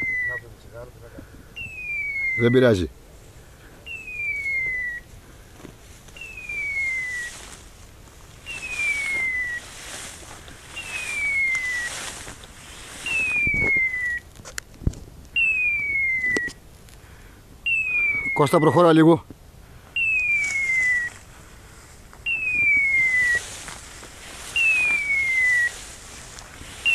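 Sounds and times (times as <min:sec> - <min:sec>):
falling electronic beep: 0:00.0 - 0:00.4.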